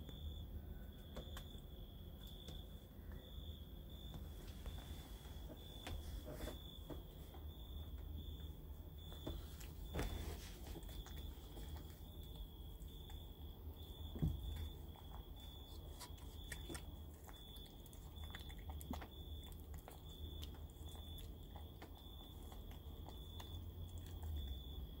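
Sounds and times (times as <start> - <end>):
kittens chewing food: 5.4 - 25.0.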